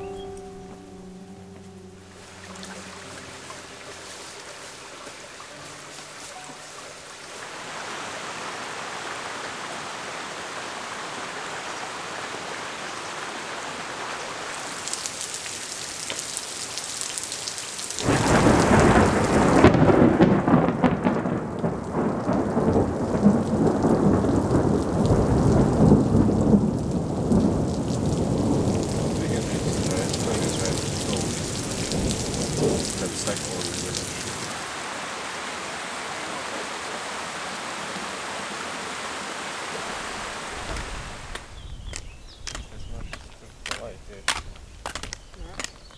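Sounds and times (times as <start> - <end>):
flowing stream water: 0.0 - 18.9, 27.4 - 45.8
heavy rain: 0.0 - 45.7
rumbling thunder: 18.0 - 34.6.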